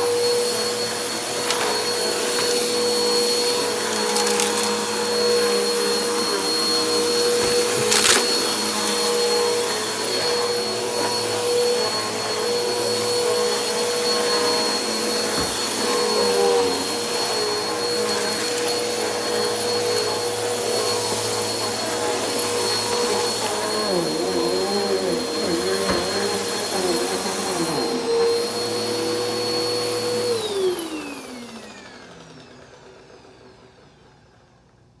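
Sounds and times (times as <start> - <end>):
vacuum motor spinning down: 0.0 - 34.4
vacuum cleaner motor whine: 0.0 - 35.0.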